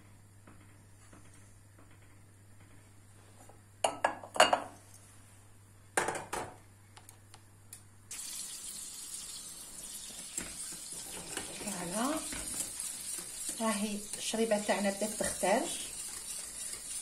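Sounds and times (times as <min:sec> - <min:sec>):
butter sizzling in pan: 0:08.1 - 0:17.0.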